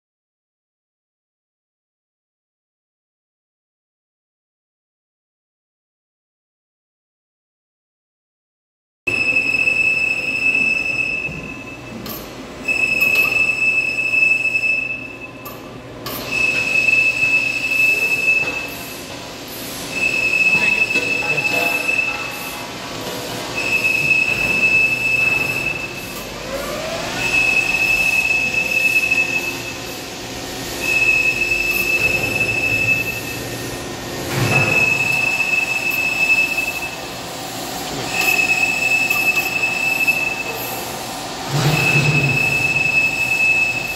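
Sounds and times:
high steady machine tone: 0:09.1 - 0:43.9
lathe spindle running: 0:12.2 - 0:43.9.

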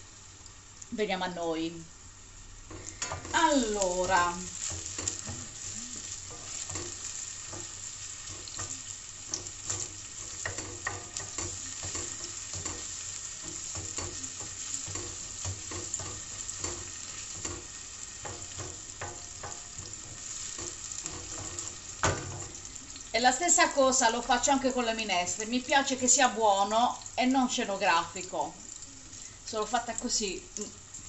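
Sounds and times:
onion sizzling in hot oil: 0:00.0 - 0:31.0
wooden spoon scraping and tapping pan: 0:04.0 - 0:22.7.

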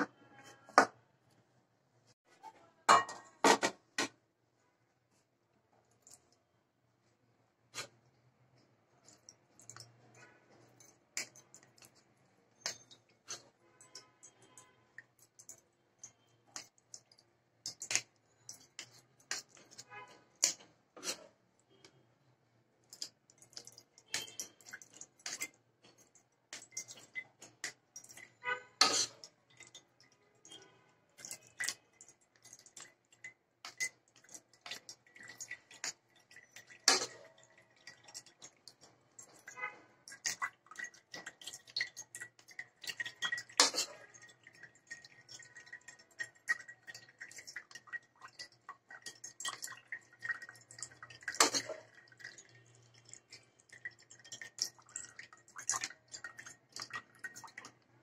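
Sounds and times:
liquid dripping onto metal plate: 0:08.5 - 0:22.0, 0:22.8 - 0:58.0
spoon scraping through a strainer: 0:28.2 - 0:29.3.

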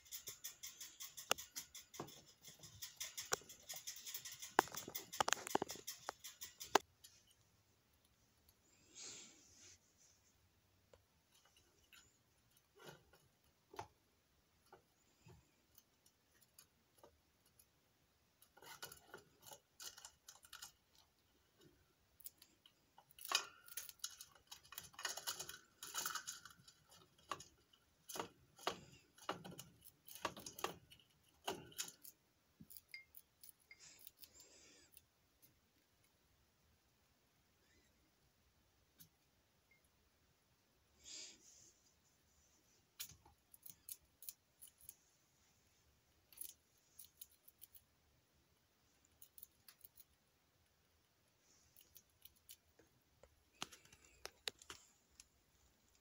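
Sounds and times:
rats scratching in wire cage: 0:00.0 - 0:07.4, 0:14.7 - 0:35.6, 0:42.9 - 0:45.1.

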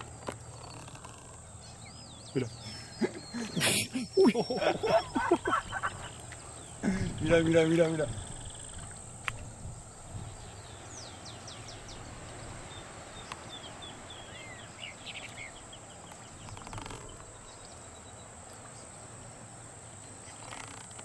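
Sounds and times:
low outdoor hiss: 0:00.0 - 0:21.0
small bird chirping: 0:10.2 - 0:18.2.

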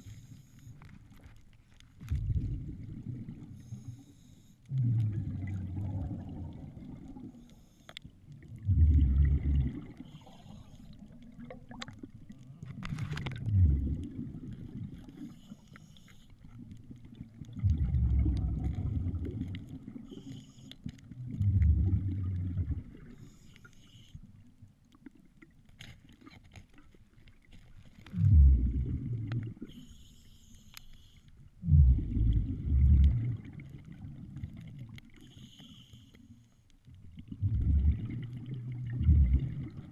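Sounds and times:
water gurgling and rushing: 0:02.0 - 0:03.6, 0:04.7 - 0:07.3, 0:08.3 - 0:10.3, 0:11.1 - 0:15.2, 0:16.9 - 0:20.1, 0:21.2 - 0:23.1, 0:28.0 - 0:29.7, 0:31.6 - 0:35.2, 0:37.1 - 0:39.9.

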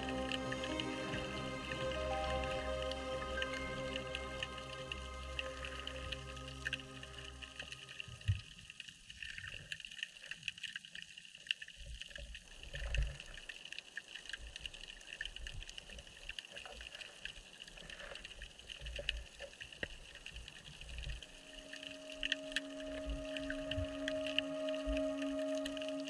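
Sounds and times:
water surging: 0:00.0 - 0:26.0.

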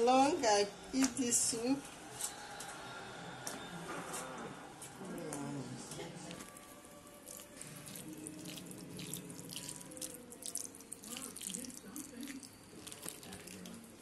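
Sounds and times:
water pouring into a bowl: 0:07.2 - 0:14.0
water splashing and trickling: 0:07.8 - 0:13.8.

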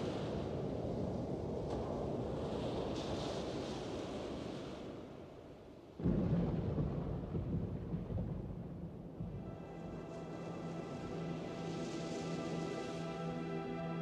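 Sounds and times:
rush of wind and surf: 0:00.0 - 0:06.3, 0:09.2 - 0:14.0.

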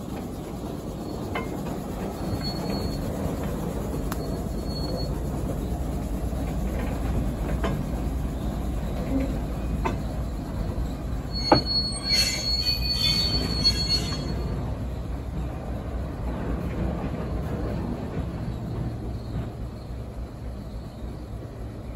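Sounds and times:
diesel locomotive rumbling: 0:00.0 - 0:21.9
wheels squealing against rail: 0:01.0 - 0:05.8, 0:06.8 - 0:15.4.

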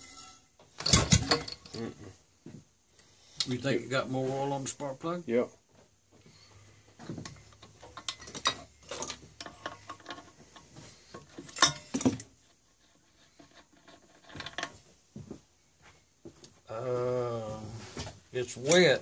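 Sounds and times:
hand tools clinking on metal: 0:00.0 - 0:02.0, 0:07.2 - 0:12.4.

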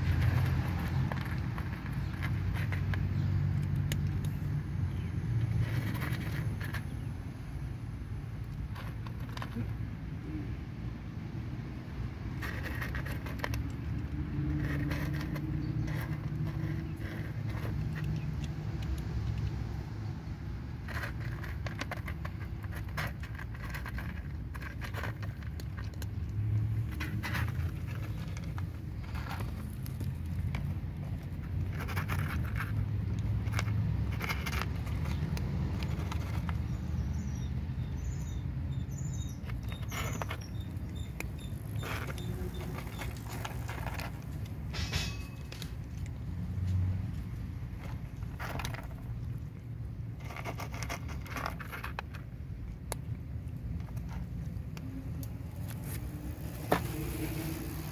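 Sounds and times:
cats crunching dry kibble: 0:00.0 - 0:44.7, 0:45.4 - 0:57.9.

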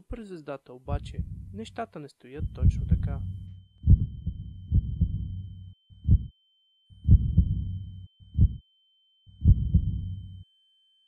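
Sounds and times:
heartbeat thumps: 0:00.9 - 0:01.8, 0:02.4 - 0:06.3, 0:07.0 - 0:08.6, 0:09.4 - 0:10.3
high-pitched ringing tone: 0:02.4 - 0:11.0.

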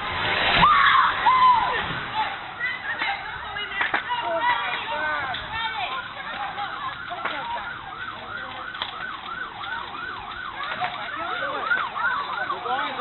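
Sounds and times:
sirens wailing in fast yelp: 0:04.3 - 0:13.0
lower-pitched siren: 0:05.7 - 0:13.0.

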